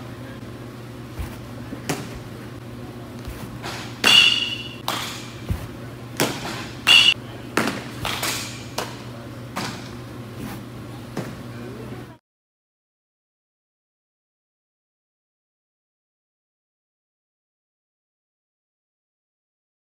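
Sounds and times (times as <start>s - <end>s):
baseballs thudding into gloves: 1.1s - 2.4s, 3.1s - 11.4s
metal bat pinging on ball: 3.6s - 5.5s, 6.2s - 8.6s.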